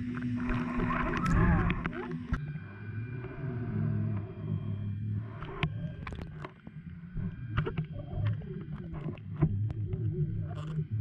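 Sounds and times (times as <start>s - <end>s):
low underwater hum: 0.0s - 11.0s.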